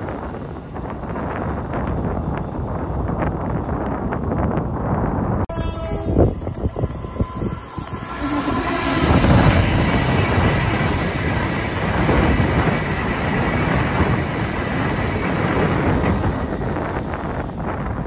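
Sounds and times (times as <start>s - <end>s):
electric train passing: 5.5s - 18.0s.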